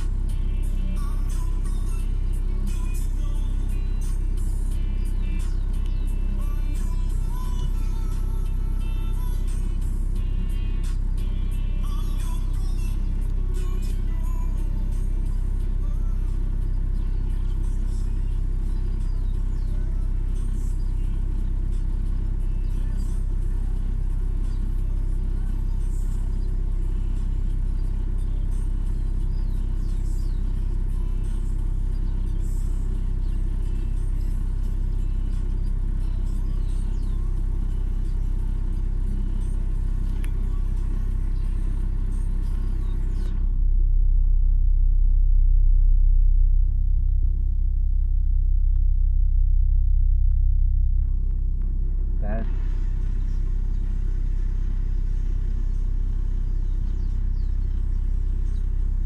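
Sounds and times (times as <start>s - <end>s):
steady low rumble: 0.0s - 59.0s.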